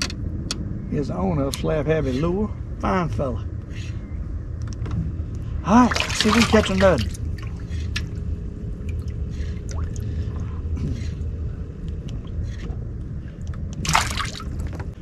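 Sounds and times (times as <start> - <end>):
steady low rumble: 0.0 - 15.0
water rush: 5.6 - 8.2, 13.8 - 14.8
water lapping against boat hull: 5.7 - 11.2, 12.0 - 15.0.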